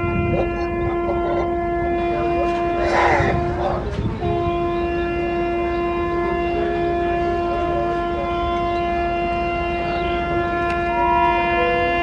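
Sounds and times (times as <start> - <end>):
low rumble: 0.0 - 5.0
locomotive air horn blast: 0.0 - 12.0.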